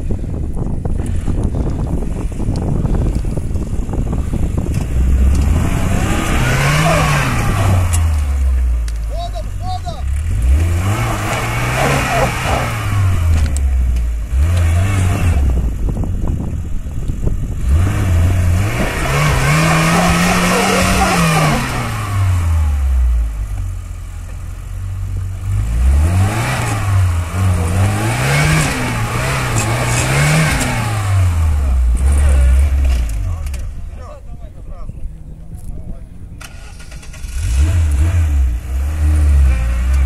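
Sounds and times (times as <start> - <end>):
car engine revving hard: 4.7 - 8.8, 10.1 - 15.7, 17.5 - 23.4, 25.3 - 33.2, 36.4 - 40.0.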